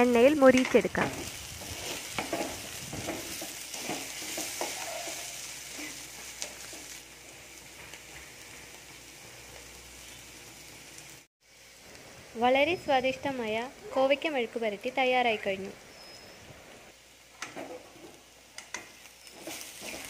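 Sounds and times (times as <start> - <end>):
vegetables sizzling in oil: 0.0 - 16.2, 16.9 - 20.0
wooden spatula scraping: 0.6 - 7.0, 19.2 - 20.0.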